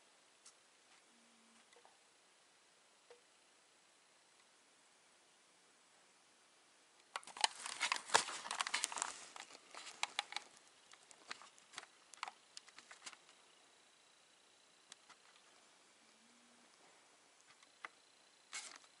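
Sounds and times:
rustling and crinkling handling noise: 0:07.1 - 0:13.4, 0:16.8 - 0:19.0.

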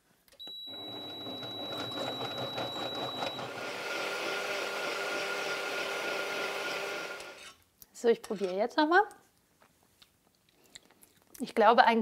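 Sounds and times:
blender motor blending liquid: 0:00.7 - 0:07.5.

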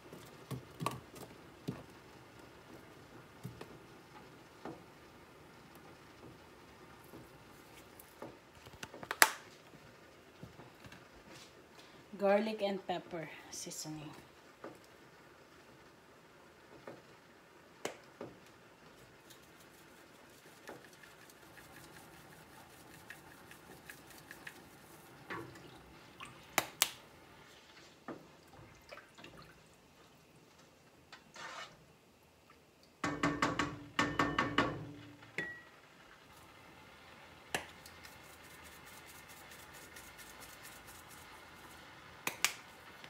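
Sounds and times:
spoon stirring and tapping in pot: 0:33.0 - 0:35.7
seasoning containers shaken: 0:38.2 - 0:41.8.

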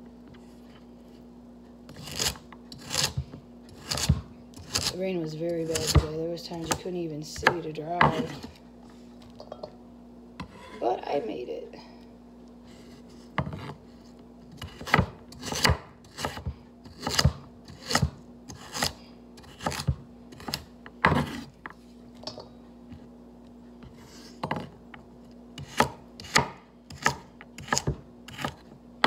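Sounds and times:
knife chopping on cutting board: 0:01.9 - 0:04.9, 0:05.7 - 0:06.8, 0:07.4 - 0:08.6, 0:14.5 - 0:21.5, 0:25.6 - 0:28.6.

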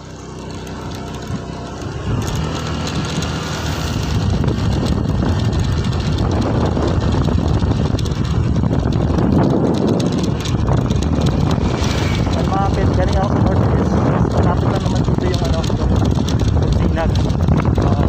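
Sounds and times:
road and wind noise: 0:00.0 - 0:18.0
vehicle engine running: 0:00.0 - 0:18.0.

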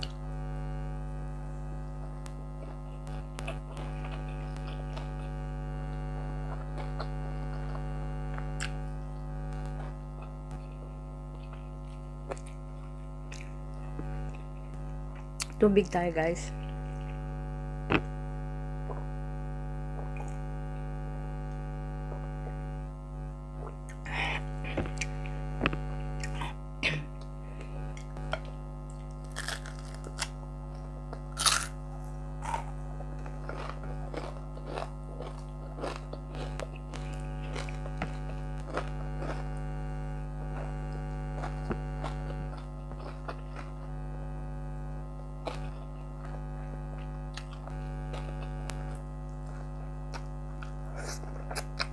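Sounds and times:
air conditioner humming: 0:00.0 - 0:51.9
chewing and crunchy bites: 0:02.2 - 0:15.6, 0:27.2 - 0:44.3, 0:45.0 - 0:51.9.

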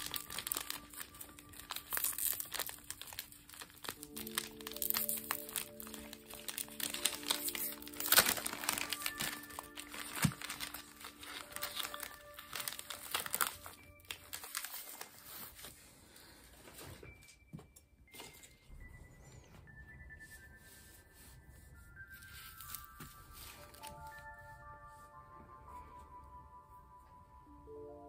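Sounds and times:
plastic wrapper crinkling: 0:00.0 - 0:15.8, 0:22.2 - 0:24.4
soft background music: 0:00.0 - 0:28.0.

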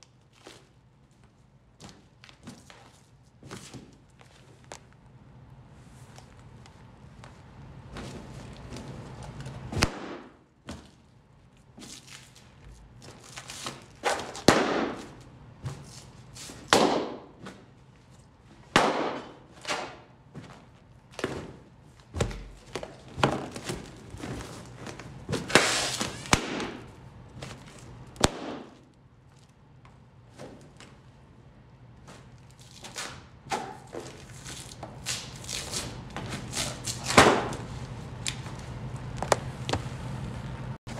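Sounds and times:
balloons bursting: 0:09.8 - 0:10.4, 0:14.1 - 0:15.2, 0:16.7 - 0:17.4, 0:18.7 - 0:19.9, 0:25.4 - 0:26.9.

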